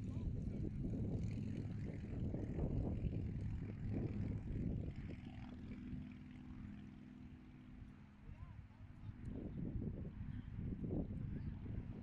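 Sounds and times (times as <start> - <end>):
wind buffeting microphone: 0.0 - 5.2, 9.2 - 12.0.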